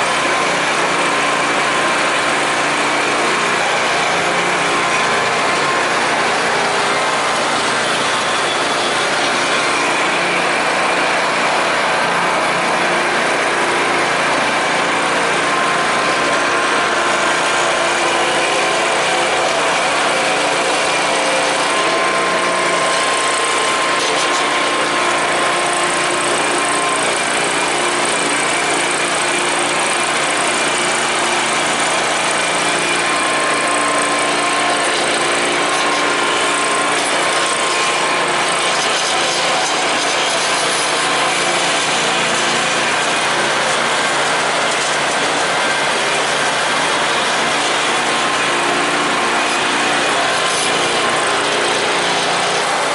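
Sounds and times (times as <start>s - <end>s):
garden tractor engine running: 0.0s - 52.9s.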